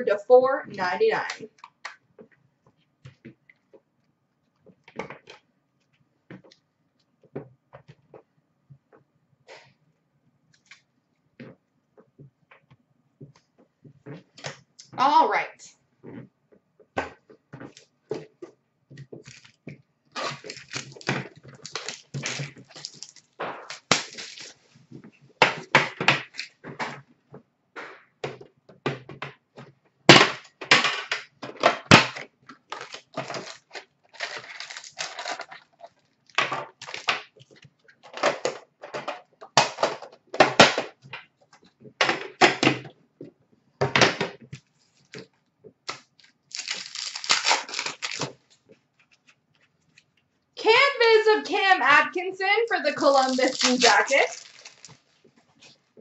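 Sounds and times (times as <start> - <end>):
packaging tearing and rustling: 19.2 - 19.6, 20.2 - 24.6, 32.7 - 37.5, 45.9 - 50.0, 53.0 - 55.8.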